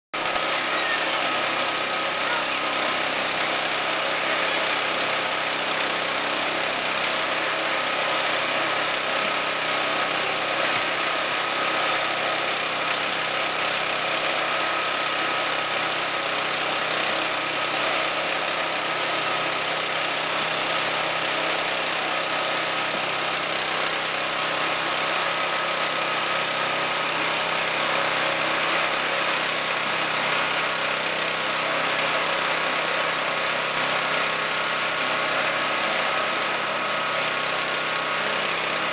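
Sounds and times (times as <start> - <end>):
concrete mixer engine running: 0.1 - 38.9.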